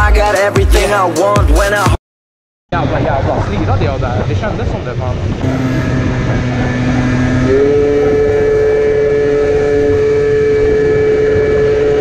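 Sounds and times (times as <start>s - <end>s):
wind noise: 2.7s - 12.0s
scooter engine high whine: 2.8s - 12.0s.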